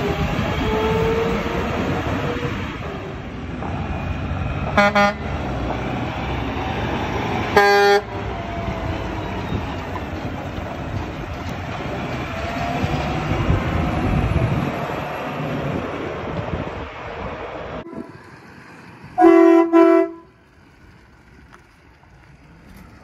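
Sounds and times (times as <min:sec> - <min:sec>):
diesel truck driving past: 0:00.0 - 0:23.0
truck horn honking: 0:04.7 - 0:05.4, 0:07.5 - 0:08.2, 0:19.2 - 0:20.4.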